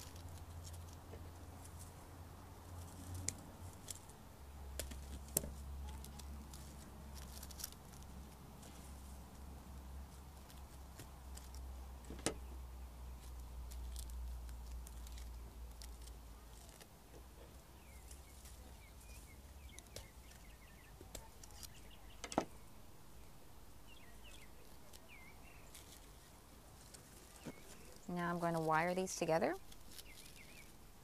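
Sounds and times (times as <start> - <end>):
faint birds chirping: 0.0 - 31.0.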